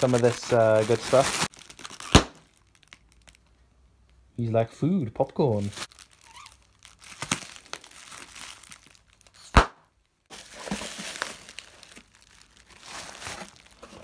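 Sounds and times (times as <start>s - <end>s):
plastic and bubble wrap crinkling: 0.0s - 3.6s, 5.3s - 14.0s
sharp snap: 9.5s - 9.8s.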